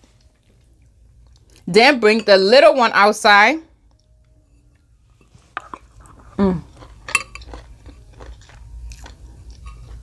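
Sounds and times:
soft wet chewing: 0.1s - 1.6s, 3.8s - 10.0s.

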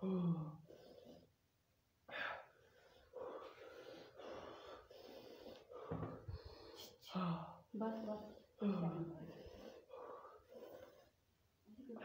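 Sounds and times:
man breathing heavily: 2.0s - 11.3s.

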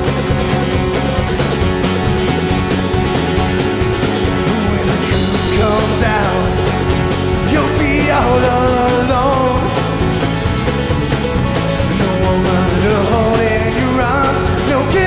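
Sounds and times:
country band playing: 0.0s - 15.0s
man singing lead vocal: 4.4s - 10.2s, 11.9s - 15.0s.

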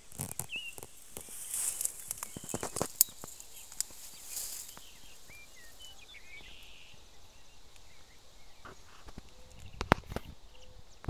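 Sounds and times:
grass rustling underfoot: 0.0s - 10.4s
faint bird chirps: 0.1s - 11.0s.

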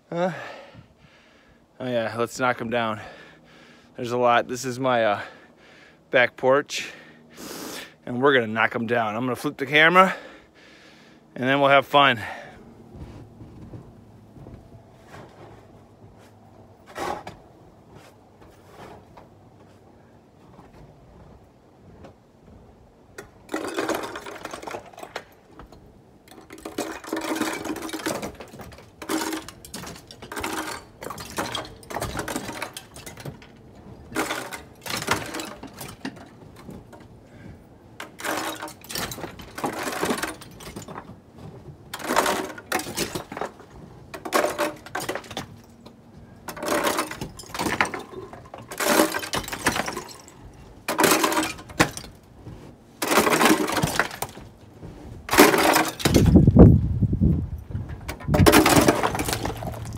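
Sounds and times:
ice cracking and breaking: 58.4s - 59.9s.

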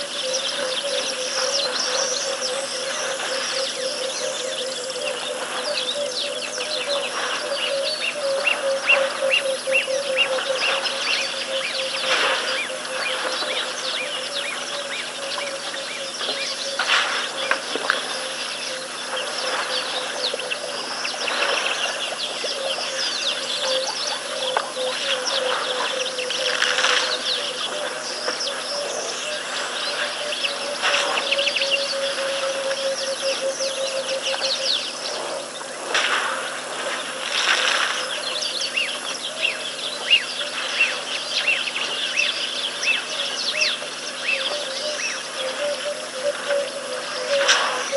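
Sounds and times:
insect trill: 0.0s - 35.1s
small birds chirping and whistling: 0.0s - 35.3s, 37.3s - 47.9s.

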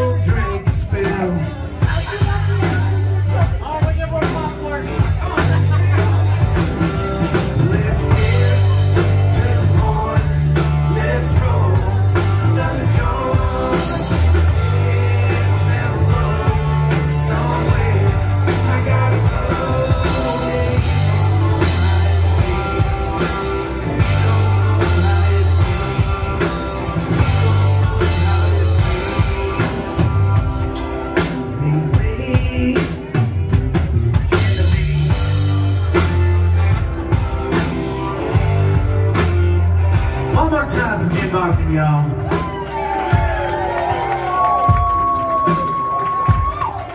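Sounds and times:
man singing lead: 0.0s - 36.1s, 40.3s - 42.4s
bass guitar: 0.0s - 46.9s
drum kit beat: 0.0s - 46.9s
electric guitars: 0.0s - 46.9s.

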